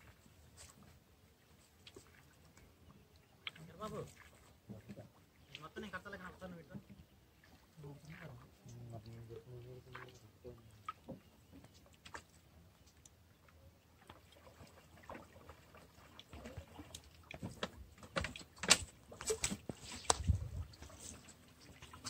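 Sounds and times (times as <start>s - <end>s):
water sloshing: 0.0s - 22.0s.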